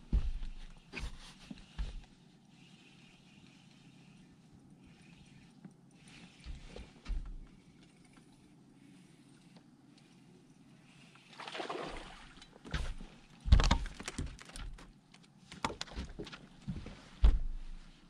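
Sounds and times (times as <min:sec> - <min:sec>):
fish splashing at surface: 0:11.3 - 0:12.4.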